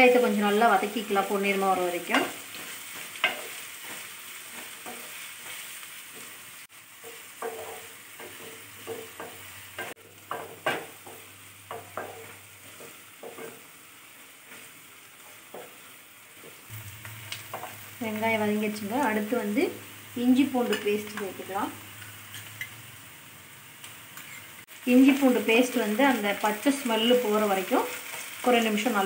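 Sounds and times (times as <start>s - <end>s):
onions sizzling in oil: 0.0s - 29.0s
spatula scraping and tapping pan: 2.0s - 13.7s, 14.4s - 17.9s, 20.6s - 22.8s, 27.9s - 28.4s.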